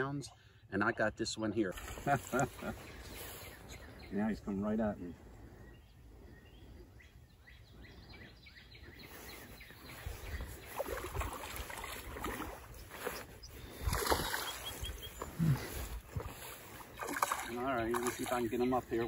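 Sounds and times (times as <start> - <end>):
fish splashing at water surface: 13.7 - 14.8, 16.7 - 18.4.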